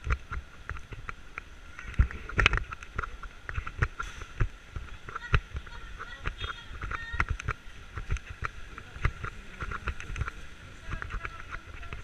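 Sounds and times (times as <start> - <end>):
people in the street: 0.0 - 12.0
street traffic hum: 0.0 - 12.0.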